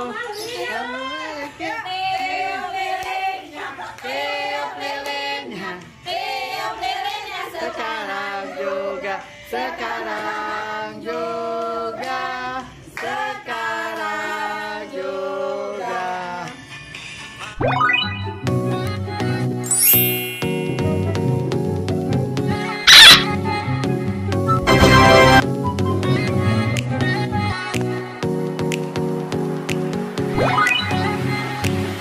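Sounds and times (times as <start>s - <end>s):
women singing together: 0.0s - 16.5s.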